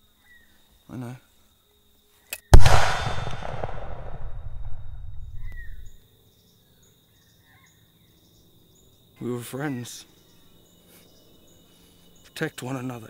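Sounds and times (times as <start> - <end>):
gunshot with rolling echo: 2.6 - 5.9
high insect drone: 5.3 - 13.0.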